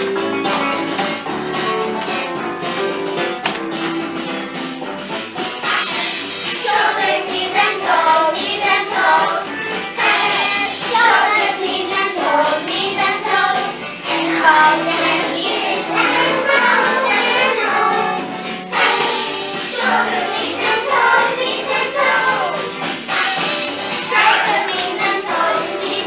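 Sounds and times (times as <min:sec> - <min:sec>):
backing track music: 0:00.0 - 0:26.0
children singing: 0:06.6 - 0:26.0.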